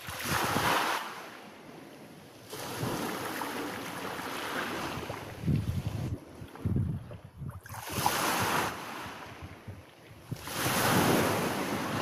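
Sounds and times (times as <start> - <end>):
waves breaking on pebbles: 0.0 - 1.3, 10.3 - 12.0
wind buffeting microphone: 4.7 - 12.0.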